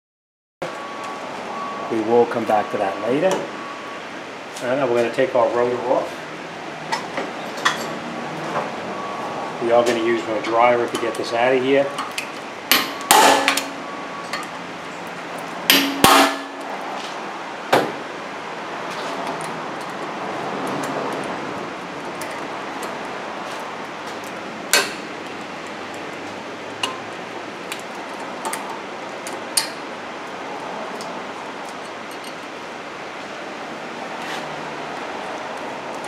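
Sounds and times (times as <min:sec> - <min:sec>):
hammer striking metal: 0:12.7 - 0:14.5, 0:15.7 - 0:16.7.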